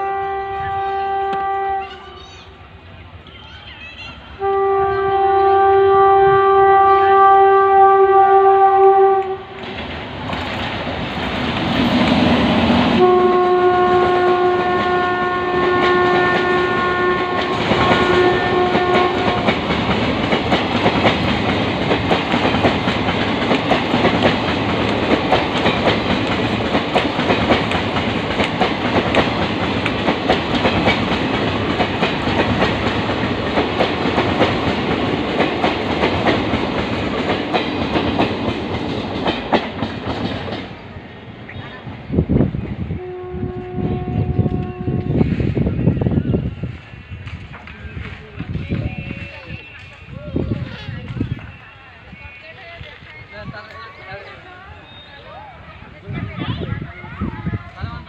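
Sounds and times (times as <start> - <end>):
locomotive horn blasts: 0.0 - 2.1, 4.4 - 9.6, 13.0 - 19.6, 43.0 - 45.2
train coaches rushing past: 0.0 - 58.0.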